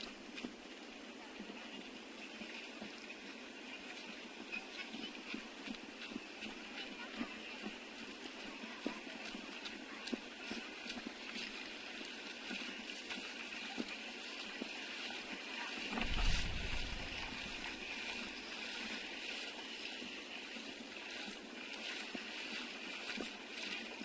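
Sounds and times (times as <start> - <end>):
water splashing and sloshing: 0.0 - 24.0
low rumble: 16.0 - 17.7.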